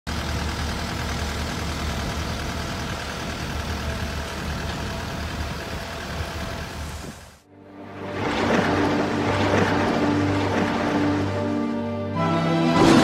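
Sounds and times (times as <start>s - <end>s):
diesel engine humming: 0.1s - 13.0s.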